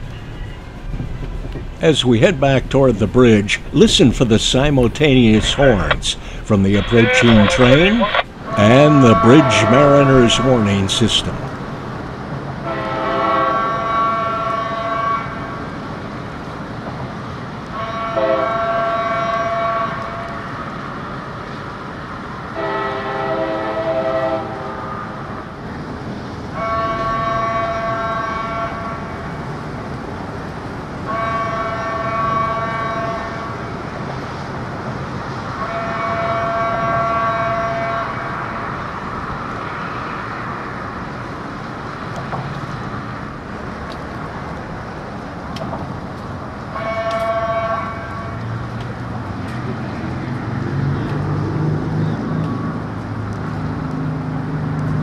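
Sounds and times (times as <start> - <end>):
bridge warning horn: 0.0 - 11.9, 12.6 - 15.7, 17.7 - 20.7, 22.5 - 25.2, 26.5 - 29.5, 31.1 - 33.9, 35.5 - 40.0, 46.7 - 48.8
locomotive horn blasts: 2.8 - 11.6, 12.6 - 15.6, 17.8 - 20.5, 22.6 - 24.9, 26.6 - 29.1, 31.1 - 33.7, 35.6 - 38.6, 46.7 - 48.5.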